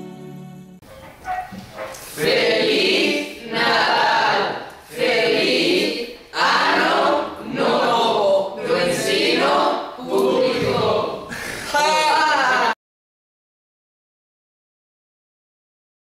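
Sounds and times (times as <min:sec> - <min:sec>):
teenagers singing together: 0:00.0 - 0:11.5.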